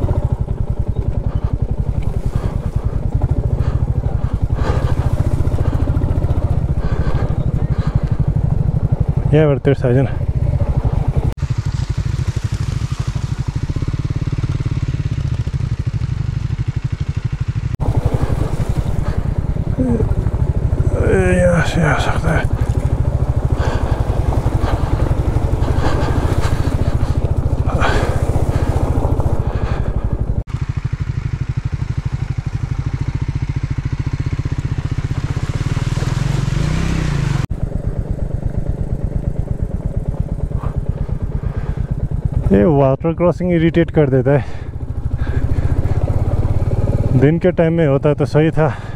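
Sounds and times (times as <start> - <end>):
water splashing against wheels: 0.0 - 9.3, 10.6 - 15.7, 17.8 - 30.4
motorcycle engine running: 0.0 - 48.9.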